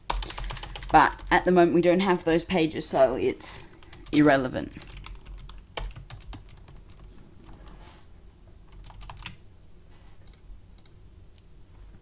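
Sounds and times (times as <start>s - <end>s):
keystrokes on computer keyboard: 0.1s - 1.3s, 4.7s - 7.8s, 8.7s - 9.4s, 10.2s - 11.0s.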